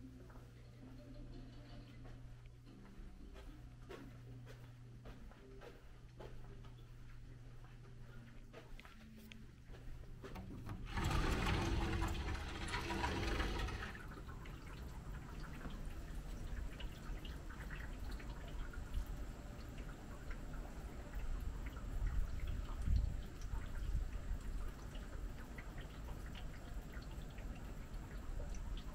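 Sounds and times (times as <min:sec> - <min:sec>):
sliding door opening: 0:10.4 - 0:14.0
wind rumble on microphone: 0:21.4 - 0:24.9.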